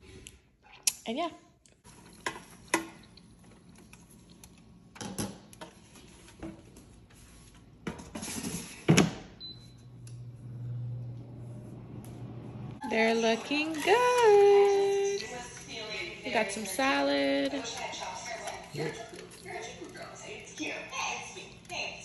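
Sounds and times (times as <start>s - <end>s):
air fryer humming: 1.8s - 22.0s.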